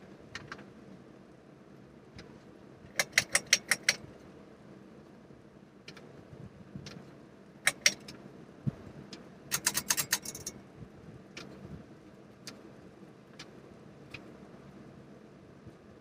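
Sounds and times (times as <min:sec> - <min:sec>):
ceiling fan hum: 0:00.0 - 0:16.0
pull-chain switch clicks: 0:03.0 - 0:04.0, 0:07.7 - 0:08.2, 0:09.5 - 0:10.6.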